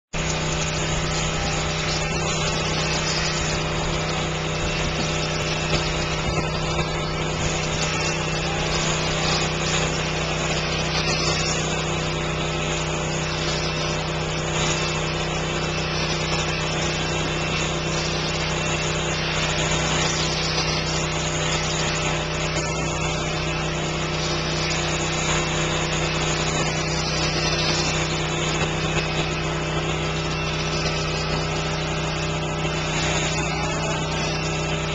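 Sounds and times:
sheep-shearing machines buzzing: 0.0s - 34.9s.

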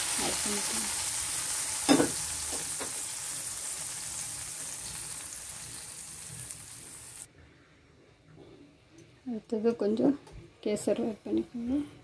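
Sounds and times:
hot ghee sizzling: 0.0s - 7.3s.

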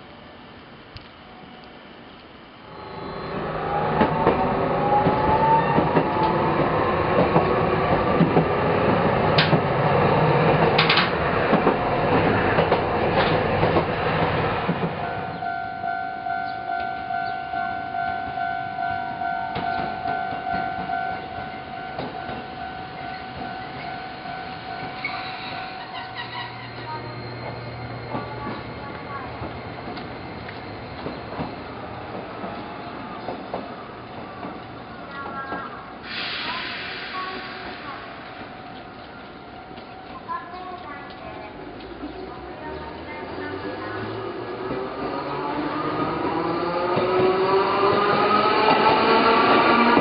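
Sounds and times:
streetcar rumble: 0.0s - 50.0s
motor whine rising: 2.6s - 5.6s
wheels clacking over rails: 3.9s - 15.0s, 19.6s - 35.8s.

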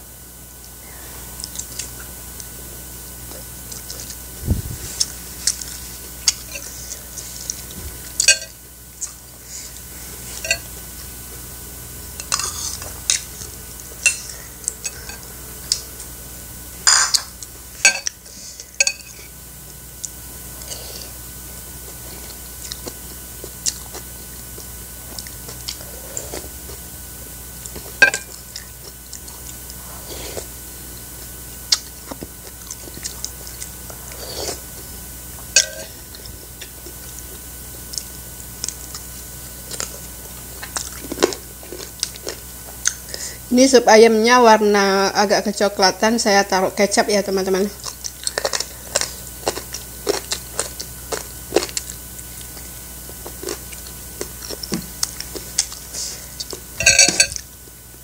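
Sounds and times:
faint steady hum: 0.0s - 58.0s
chewing food: 3.3s - 8.4s, 21.8s - 26.9s, 27.6s - 43.1s, 47.7s - 57.5s
metal spoon clinking on bowl: 56.8s - 57.4s.

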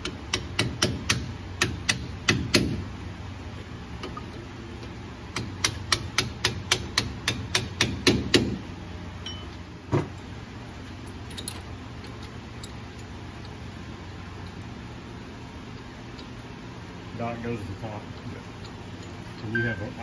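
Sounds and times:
hammer tapping metal: 5.4s - 8.6s.

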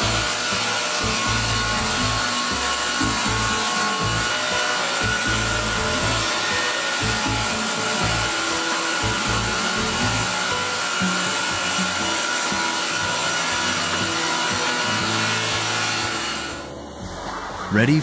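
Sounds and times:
wood planing machine cutting: 0.0s - 18.0s.

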